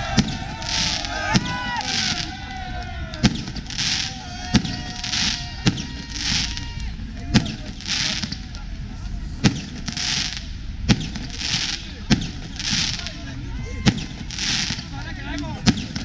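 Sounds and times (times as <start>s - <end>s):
firework bangs: 0.0s - 16.0s
hissing crackle: 0.0s - 16.0s.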